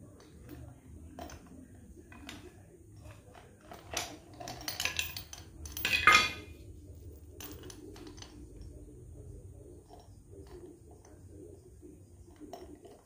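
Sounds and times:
steel chain clinking on metal: 0:03.6 - 0:06.5.

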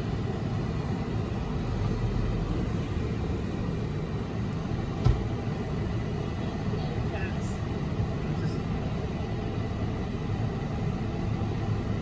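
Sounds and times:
car engine and tyres rumbling: 0:00.0 - 0:12.0
short thump: 0:05.0 - 0:05.3.

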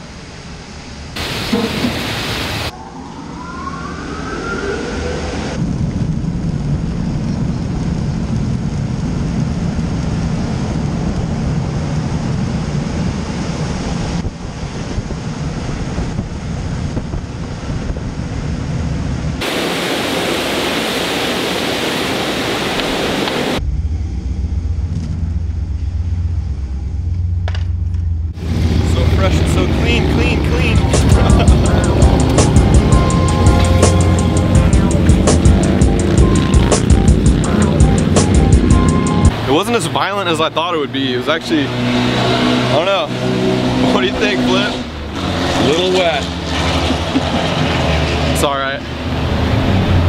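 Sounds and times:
car wash water spray and brushes: 0:00.0 - 0:02.7, 0:19.4 - 0:23.6, 0:28.4 - 0:50.0
deep rumble of blowing air: 0:00.2 - 0:20.4, 0:22.2 - 0:50.0
rising whine: 0:01.1 - 0:50.0.

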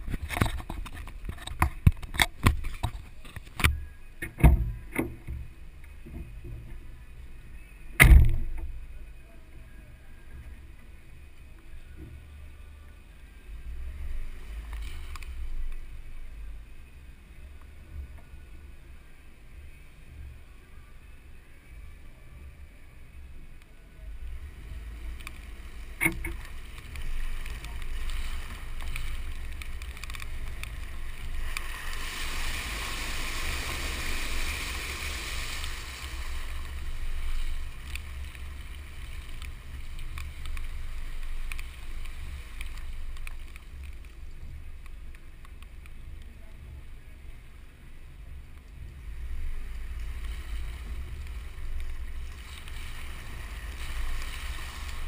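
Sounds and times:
wind rumble: 0:00.0 - 0:55.0
tyre hissing through water: 0:24.4 - 0:43.9, 0:49.2 - 0:55.0.

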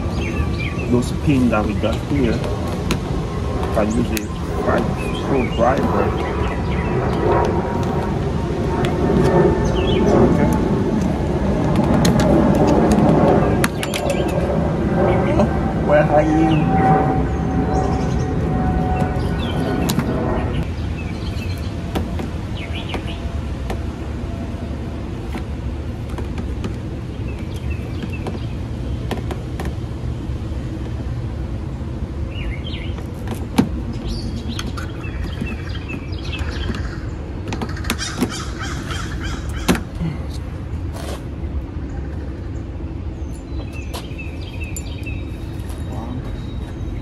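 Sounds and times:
birds calling: 0:00.0 - 0:47.0
steady background hum: 0:00.0 - 0:47.0
steady low rumble: 0:00.0 - 0:47.0
bird chirp: 0:33.9 - 0:40.2, 0:41.8 - 0:47.0.

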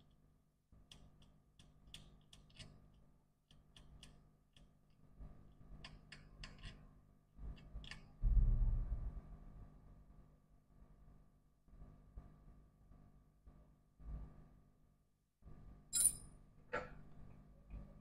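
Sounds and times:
faint steady hum: 0:01.9 - 0:18.0
small hand tool clicking and tapping: 0:03.5 - 0:04.7, 0:05.8 - 0:06.8.

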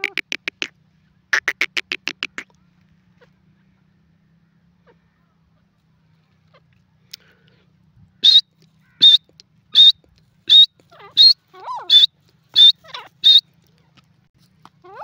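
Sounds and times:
francolin shrill calls: 0:08.2 - 0:13.5.

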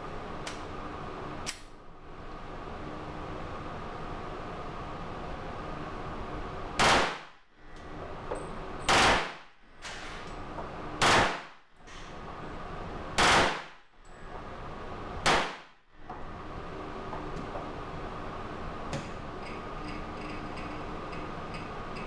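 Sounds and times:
steady background hum: 0:00.0 - 0:22.0
pistol firing bursts: 0:06.8 - 0:07.4, 0:08.8 - 0:09.5, 0:11.0 - 0:11.6, 0:13.2 - 0:13.8, 0:15.2 - 0:15.8.

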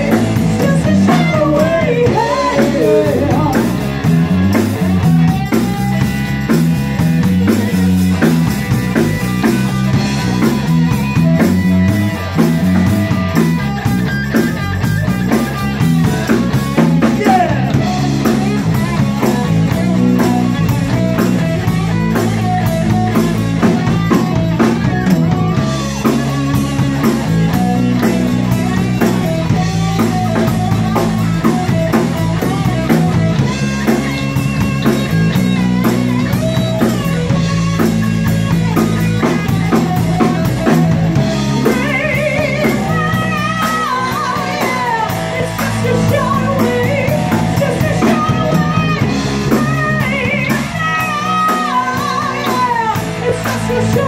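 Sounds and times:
woman singing: 0:00.0 - 0:03.8, 0:41.5 - 0:54.0
drum kit beat: 0:00.0 - 0:54.0
electric bass: 0:00.0 - 0:54.0
electric guitar: 0:00.0 - 0:54.0.

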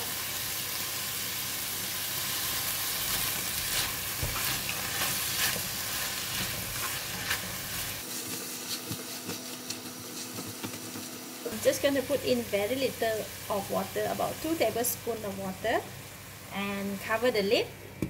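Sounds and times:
food sizzling in oil: 0:00.0 - 0:17.6
spatula scraping and tapping: 0:03.1 - 0:07.6, 0:08.2 - 0:11.2.

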